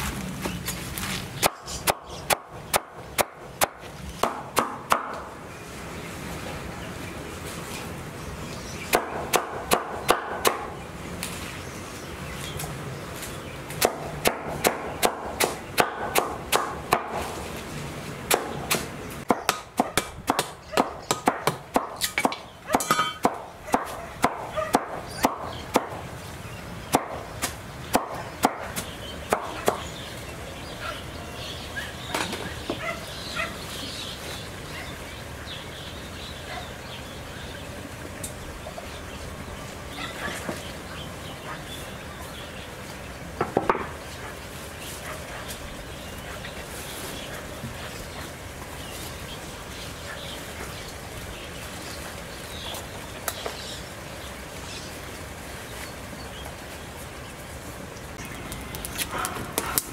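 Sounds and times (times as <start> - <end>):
chopping blows: 18.3 - 26.0.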